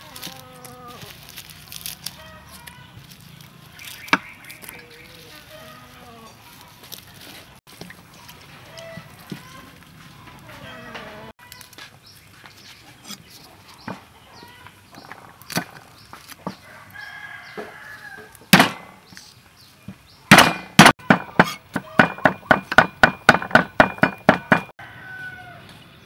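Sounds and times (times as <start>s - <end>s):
chickens calling: 0.0s - 26.0s
cleaver chopping on wooden board: 18.5s - 19.0s, 20.3s - 24.7s.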